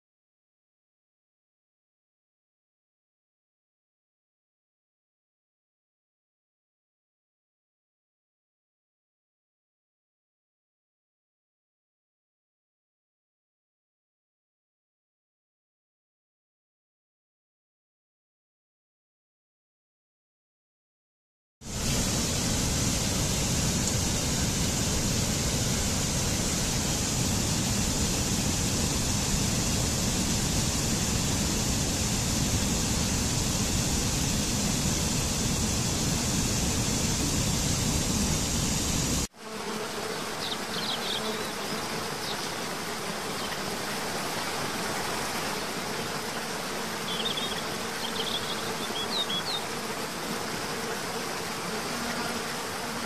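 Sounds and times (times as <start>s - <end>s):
stream rushing over rocks: 21.7s - 39.2s
soft rush of water: 21.7s - 39.3s, 40.3s - 53.0s.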